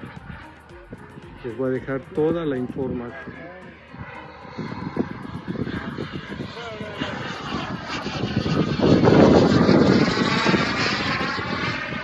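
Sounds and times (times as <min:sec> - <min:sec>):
model airplane engine flying past: 0:00.0 - 0:12.0.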